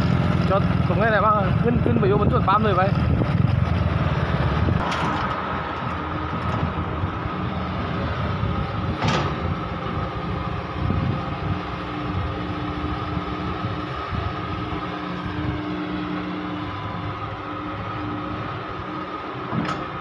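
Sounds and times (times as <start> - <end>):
excavator diesel engine under load: 0.0 - 20.0
metal clank: 9.0 - 9.5.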